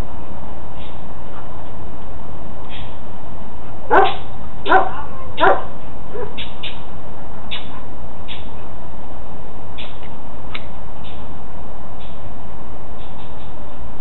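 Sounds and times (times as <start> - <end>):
dog barking: 3.9 - 6.4.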